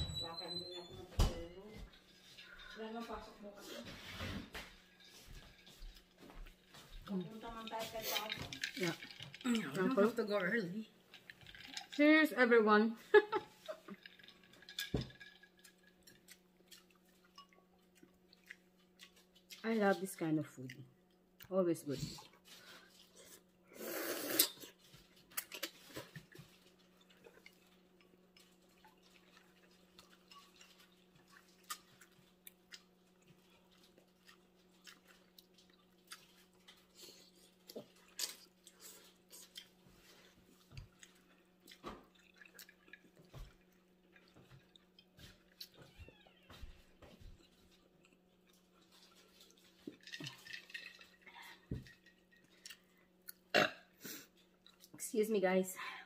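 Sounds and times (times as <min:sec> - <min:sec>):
quiet chewing: 0:01.8 - 0:12.0, 0:13.0 - 0:55.0
loud noodle slurp: 0:23.7 - 0:24.8.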